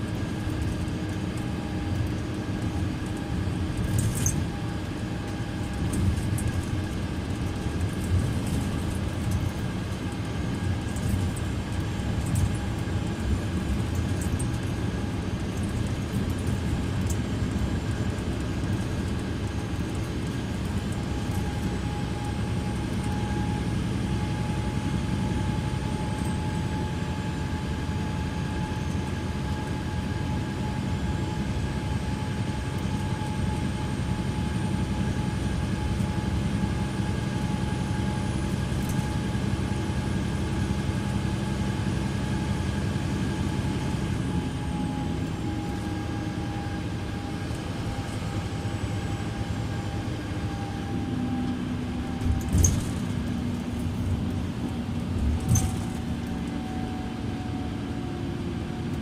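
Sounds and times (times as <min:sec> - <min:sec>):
steady high whine: 0:00.0 - 0:59.0.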